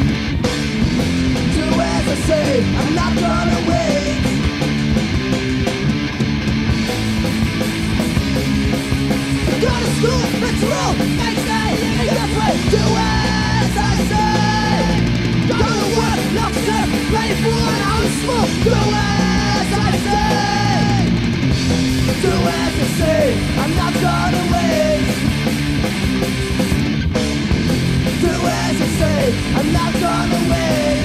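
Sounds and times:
distorted electric guitars: 0:00.0 - 0:31.0
drums: 0:00.0 - 0:31.0
hardcore punk song: 0:00.0 - 0:31.0
shouted vocals: 0:09.5 - 0:21.2, 0:22.1 - 0:25.1, 0:28.1 - 0:31.0.

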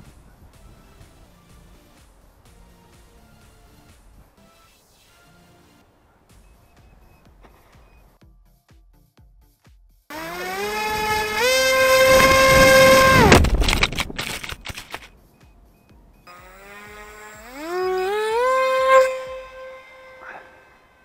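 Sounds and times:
electric motor propeller whine: 0:10.1 - 0:14.5, 0:16.3 - 0:21.0
rough rattling: 0:10.1 - 0:15.2, 0:16.3 - 0:21.0.

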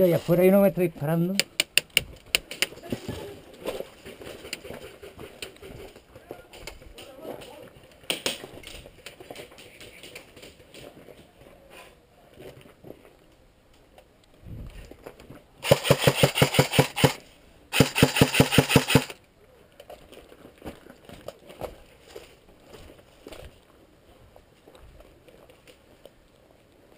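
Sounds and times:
airsoft gun full-auto bursts: 0:15.6 - 0:19.2.

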